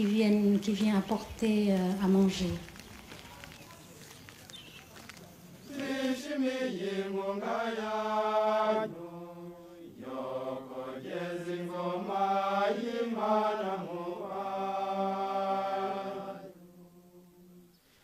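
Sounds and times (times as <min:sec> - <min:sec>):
voices singing slow chant: 0:05.4 - 0:18.0.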